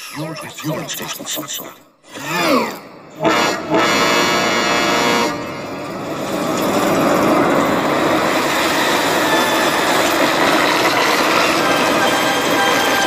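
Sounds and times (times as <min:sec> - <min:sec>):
distorted truck engine running: 0:03.0 - 0:13.0
distorted truck horn: 0:03.1 - 0:05.7.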